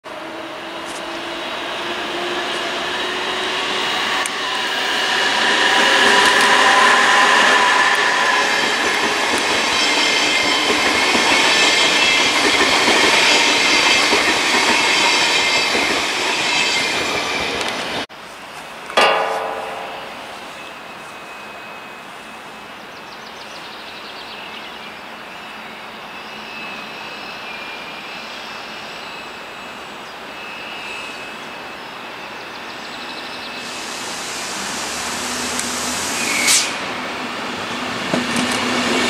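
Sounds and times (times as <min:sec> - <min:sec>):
train rolling past: 0:00.1 - 0:18.1, 0:19.0 - 0:23.6, 0:26.4 - 0:39.0
sharp ringing sound: 0:19.0 - 0:21.8.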